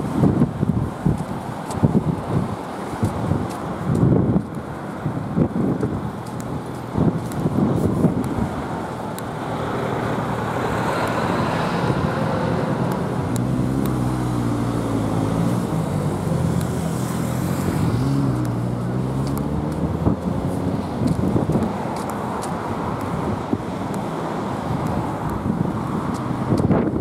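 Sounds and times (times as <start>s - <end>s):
road traffic passing: 0.0s - 27.0s
vehicle engine hum: 0.0s - 27.0s.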